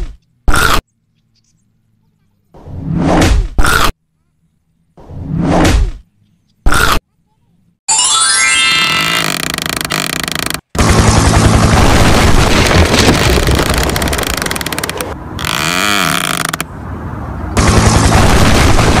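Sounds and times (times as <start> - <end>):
rapid rattling noise: 9.7 - 15.2.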